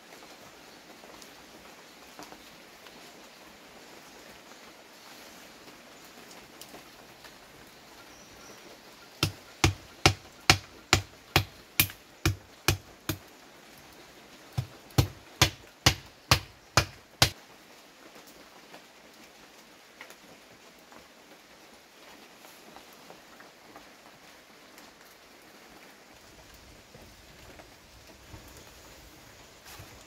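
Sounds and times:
sharp strikes: 9.2 - 13.2, 14.6 - 17.3.

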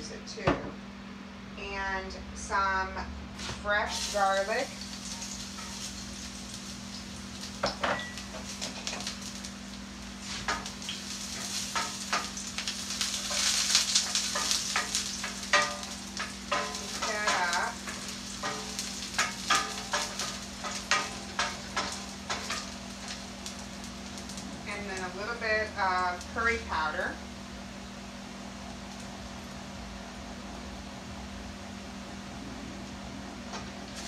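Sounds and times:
garlic sizzling in oil: 3.4 - 30.9, 33.4 - 34.0
wooden spoon scraping a pan: 10.2 - 23.2.

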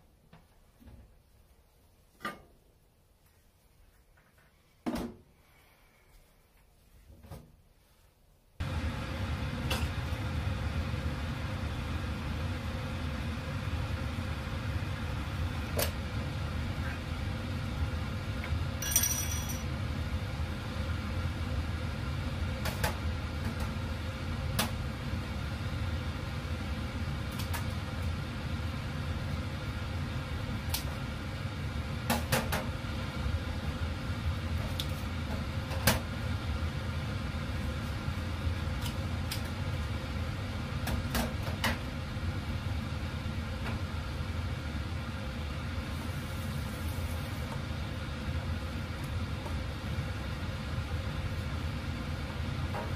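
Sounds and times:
steady low hum: 7.7 - 52.9
bright clink: 18.8 - 19.7.

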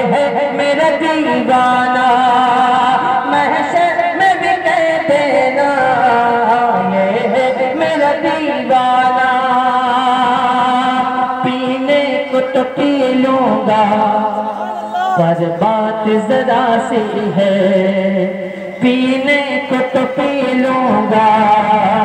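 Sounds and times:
person singing long wavering notes: 0.0 - 22.0.

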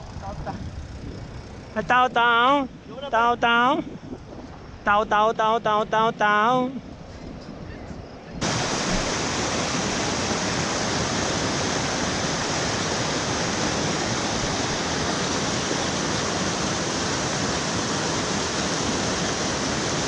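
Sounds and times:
rapids rushing over rocks: 8.4 - 20.0.

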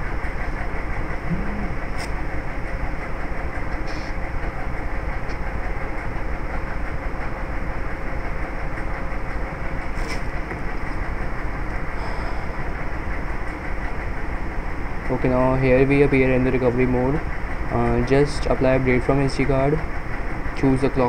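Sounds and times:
low hum: 0.0 - 3.6.

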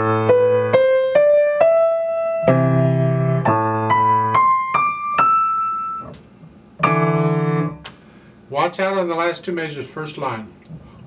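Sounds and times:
grand piano playing: 0.0 - 6.2, 6.8 - 7.8.

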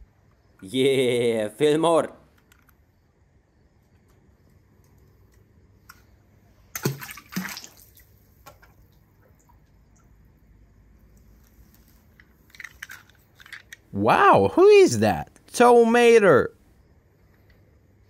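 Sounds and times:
small splashes in pool: 6.7 - 10.2.

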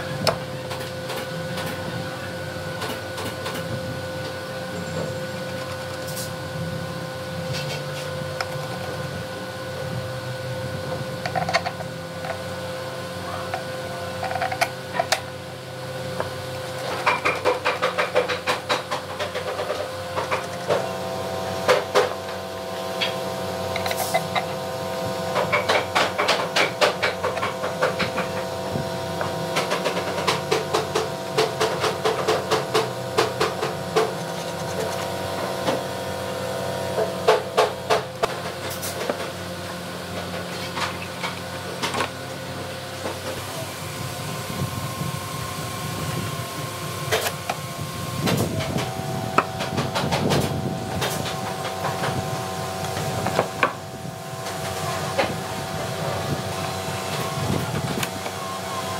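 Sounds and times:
steady hum: 0.0 - 58.9.

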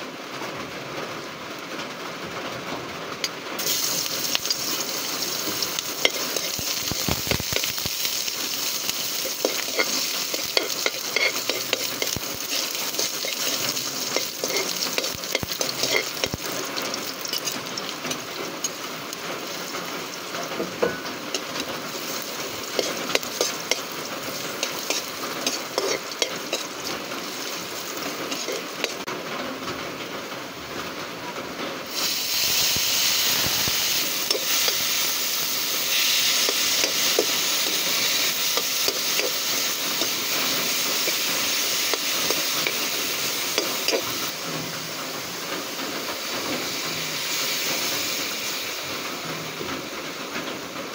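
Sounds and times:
onion and garlic sizzling in a wok: 3.2 - 30.2, 31.3 - 50.9
metal spoon scraping a pan: 3.6 - 18.8, 20.8 - 29.1, 32.0 - 44.3.

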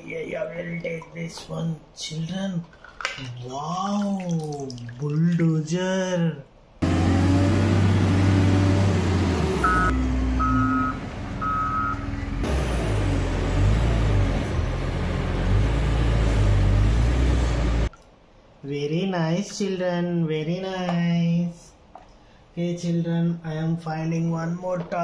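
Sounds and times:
diesel engine running: 6.8 - 17.9
reversing alarm beeping: 9.6 - 12.0.

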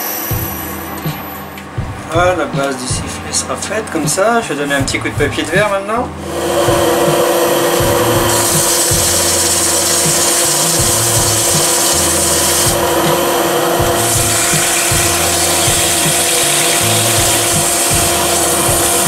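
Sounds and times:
lathe motor humming: 6.2 - 19.0
sandpaper hissing on spinning wood: 6.2 - 19.0.

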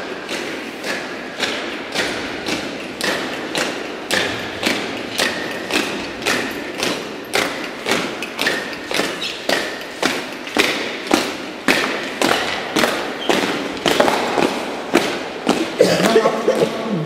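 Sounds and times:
boots marching on tiled floor: 0.0 - 17.0.

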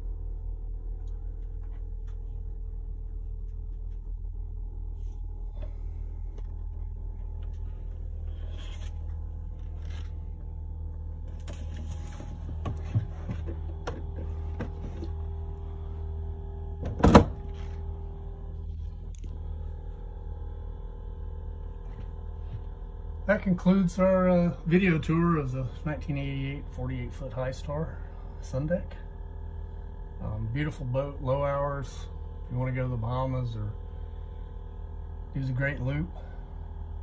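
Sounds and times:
low mechanical hum: 0.0 - 37.0
handling knocks and clicks: 11.3 - 15.2.

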